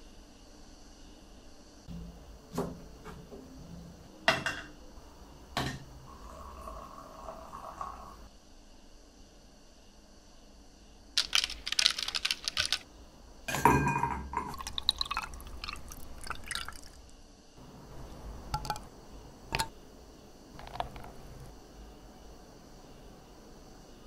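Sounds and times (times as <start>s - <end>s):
lemon juice dripping into glass: 14.4s - 17.1s
liquid poured over ice: 14.5s - 17.1s.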